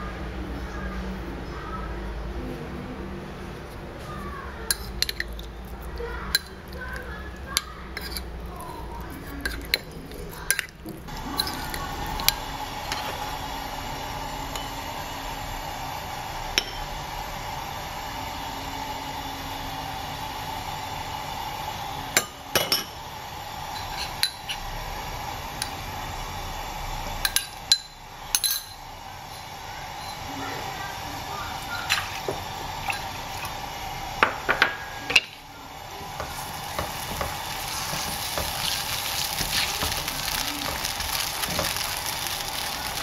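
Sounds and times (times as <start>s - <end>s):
kitchen hum: 0.0s - 43.0s
metal spoon clinking on ceramic bowl: 9.4s - 10.7s, 27.3s - 28.8s.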